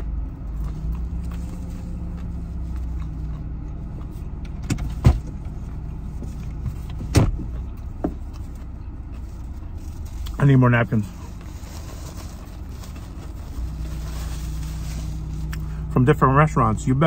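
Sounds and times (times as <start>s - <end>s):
car engine humming: 0.0s - 17.0s.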